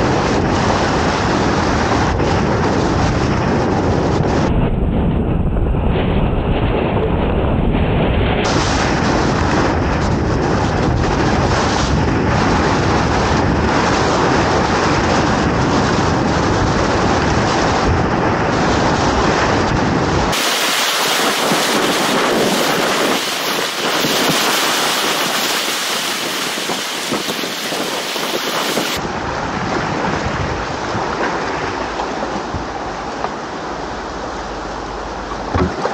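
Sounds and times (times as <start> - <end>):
river rapids rushing: 20.3 - 35.9.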